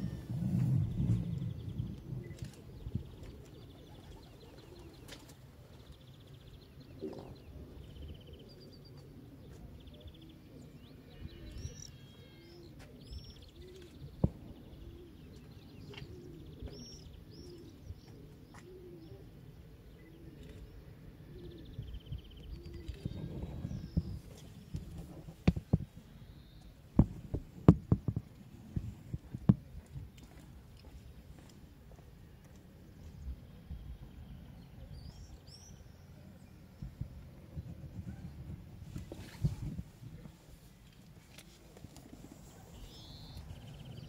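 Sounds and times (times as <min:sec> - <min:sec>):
pigeons cooing: 0:00.0 - 0:05.8, 0:06.9 - 0:25.3
small birds chirping and trilling: 0:00.0 - 0:28.2, 0:29.8 - 0:44.0.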